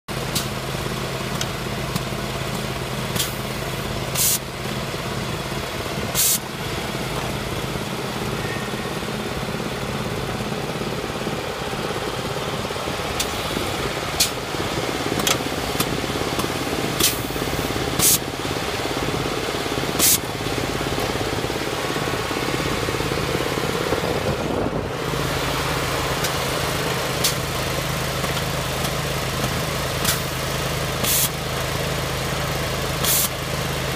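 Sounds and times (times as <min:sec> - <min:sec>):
petrol engine running: 0:00.1 - 0:33.9
compressed air blasts: 0:03.1 - 0:03.5, 0:04.1 - 0:04.5, 0:06.1 - 0:06.5, 0:14.2 - 0:14.4, 0:15.2 - 0:18.3, 0:19.9 - 0:20.3, 0:30.0 - 0:30.3, 0:31.0 - 0:31.4, 0:33.0 - 0:33.4.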